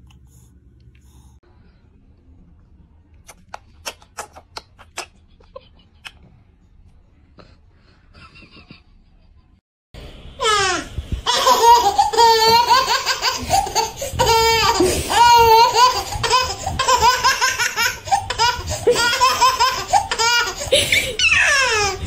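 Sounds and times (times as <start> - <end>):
baby laughing: 10.4 - 22.0
baby squealing: 21.2 - 22.0.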